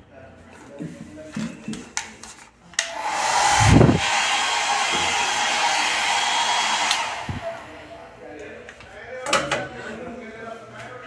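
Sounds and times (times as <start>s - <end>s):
hair dryer switch click: 2.8s - 4.2s, 6.7s - 7.4s
hair dryer blowing: 2.8s - 8.1s.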